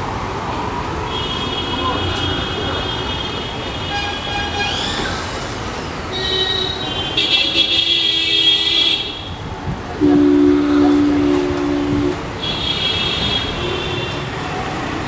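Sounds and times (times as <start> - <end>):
street traffic: 0.0 - 15.0
faint horn tones: 10.0 - 12.2
shrill horn blaring: 10.0 - 12.2.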